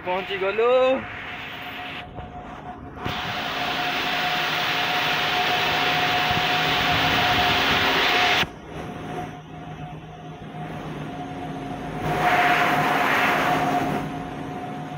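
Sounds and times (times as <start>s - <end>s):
quiet machine hum: 0.0s - 14.9s
industrial machinery rush: 12.0s - 14.9s.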